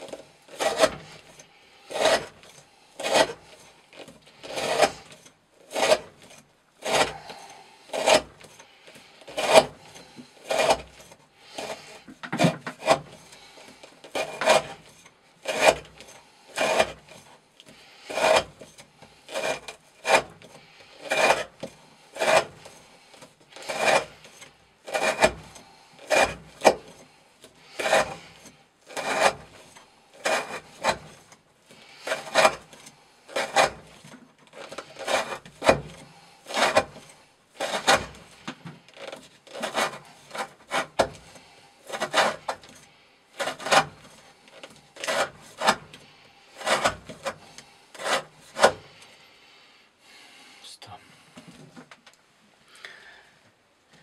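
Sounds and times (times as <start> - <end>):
knife whittling wood: 0.0 - 49.0.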